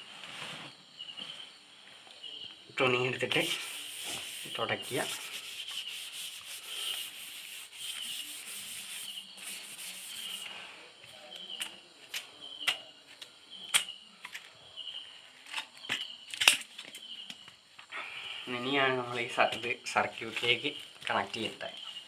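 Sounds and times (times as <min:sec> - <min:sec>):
cloth wiping a panel: 0:03.4 - 0:10.7.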